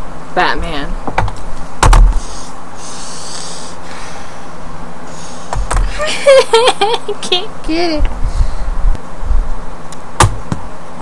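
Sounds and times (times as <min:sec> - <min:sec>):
person breathing out heavily: 0:02.1 - 0:05.6, 0:08.2 - 0:08.8.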